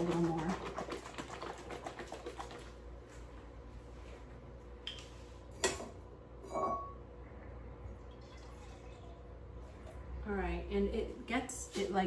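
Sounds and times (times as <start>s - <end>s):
dishware clinking: 5.6s - 7.0s.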